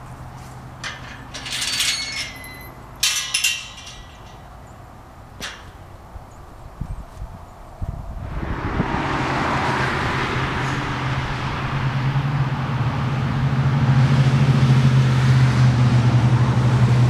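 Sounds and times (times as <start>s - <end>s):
metallic clinking and rattling: 0.0s - 6.0s.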